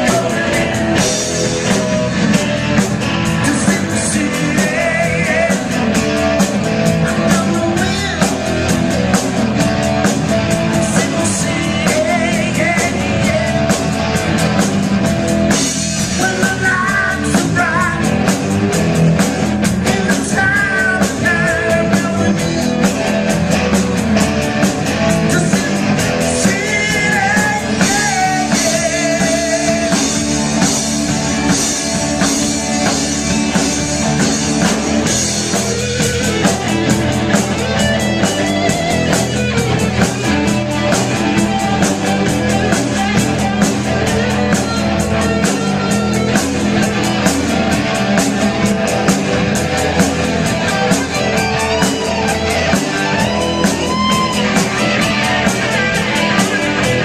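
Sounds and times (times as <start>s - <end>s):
man singing: 0.0s - 8.8s, 10.6s - 14.0s, 16.0s - 18.4s, 19.7s - 23.0s, 25.1s - 30.6s
bass guitar: 0.0s - 57.0s
drum and cymbal hits: 0.0s - 57.0s
electric guitars: 0.0s - 57.0s.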